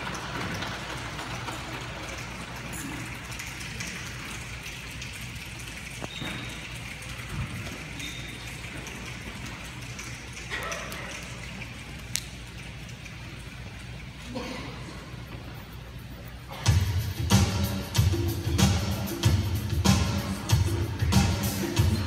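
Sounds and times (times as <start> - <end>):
choir making rain sounds with hands: 0.0 - 14.4.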